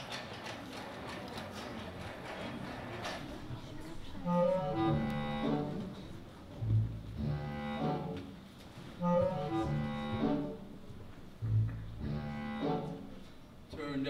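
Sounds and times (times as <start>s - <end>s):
low bass note: 6.6s - 8.0s, 9.0s - 10.5s, 11.4s - 12.9s.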